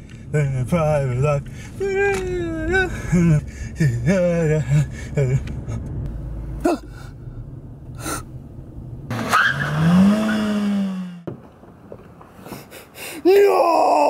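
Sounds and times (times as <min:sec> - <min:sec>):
tyre screech: 0:09.1 - 0:11.2.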